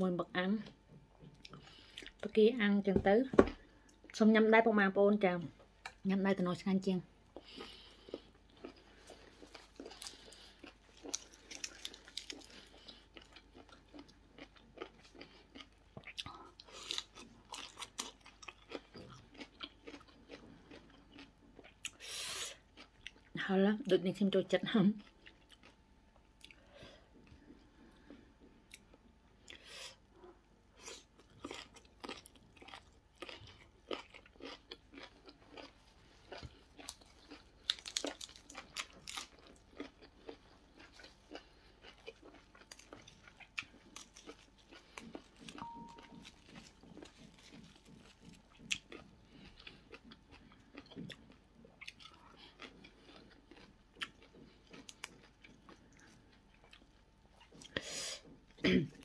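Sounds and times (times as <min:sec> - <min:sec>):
person chewing and crunching food: 0:00.6 - 0:02.3, 0:05.2 - 0:59.0.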